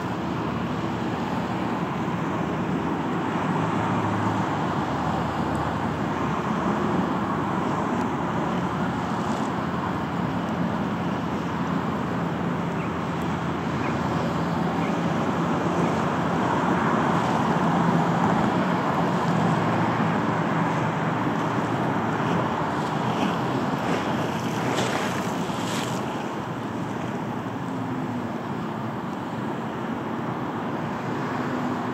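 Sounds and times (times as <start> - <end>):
engine drone: 0.0 - 31.9
water noise: 0.0 - 31.9
wind: 0.0 - 31.9.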